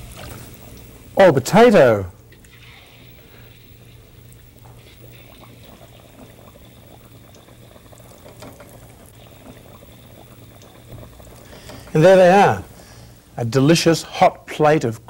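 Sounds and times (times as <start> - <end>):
food deep-frying in oil: 0.0 - 15.0
small crackles: 2.2 - 12.0.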